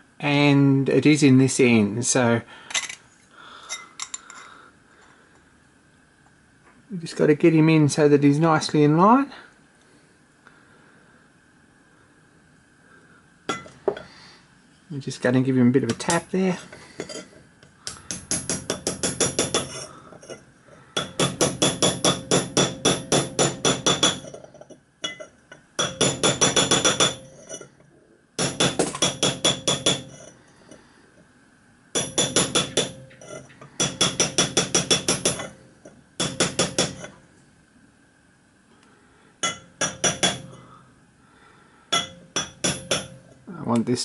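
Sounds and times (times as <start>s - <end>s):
hammer tapping on copper: 17.8s - 19.8s, 21.0s - 24.4s, 25.0s - 27.3s, 28.4s - 30.1s, 32.0s - 35.6s, 36.2s - 37.2s, 39.4s - 40.6s, 41.9s - 43.3s.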